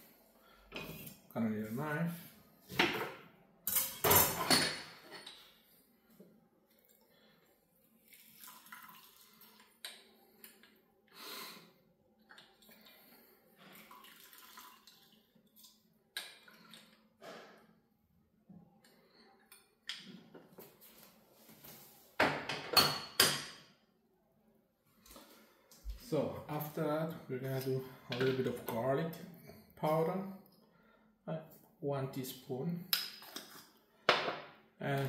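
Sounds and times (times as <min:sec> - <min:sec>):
juice pouring into glass jar: 0:08.0 - 0:09.7, 0:13.6 - 0:15.8.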